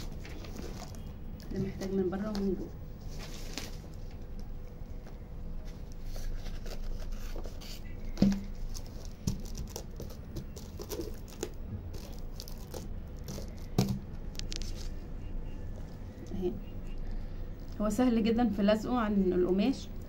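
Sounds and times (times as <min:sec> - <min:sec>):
plastic sheet crinkling: 0:00.0 - 0:04.4, 0:06.0 - 0:15.0.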